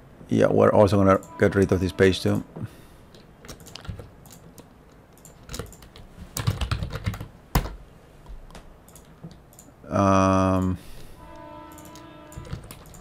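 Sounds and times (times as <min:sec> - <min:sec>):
computer keyboard typing: 0:03.1 - 0:07.8, 0:08.5 - 0:09.7, 0:11.7 - 0:13.0.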